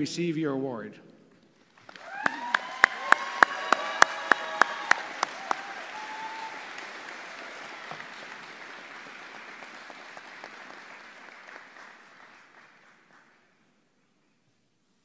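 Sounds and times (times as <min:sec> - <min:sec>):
audience applauding: 0:01.6 - 0:13.6.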